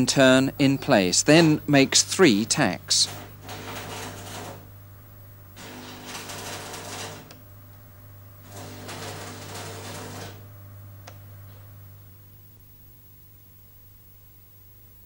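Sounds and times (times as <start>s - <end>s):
welding arc crackling: 1.4s - 4.8s, 5.5s - 11.6s.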